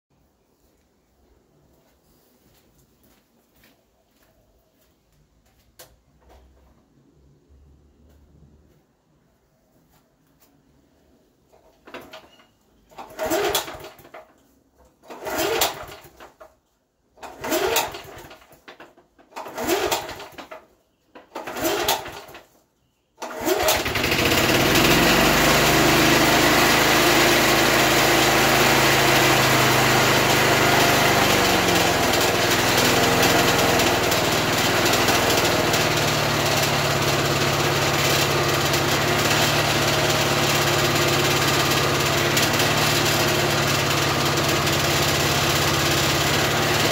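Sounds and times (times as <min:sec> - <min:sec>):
lawn mower engine running: 0:11.5 - 0:14.3, 0:15.0 - 0:16.5, 0:17.2 - 0:20.6, 0:21.3 - 0:22.4, 0:23.2 - 0:46.9
recoil starter pulls whirring: 0:11.5 - 0:22.5, 0:23.2 - 0:46.9.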